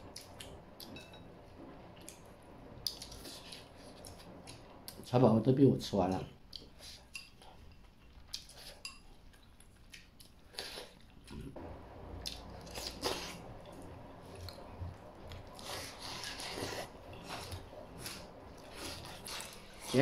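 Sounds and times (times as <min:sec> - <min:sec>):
close chewing: 0:12.2 - 0:20.0.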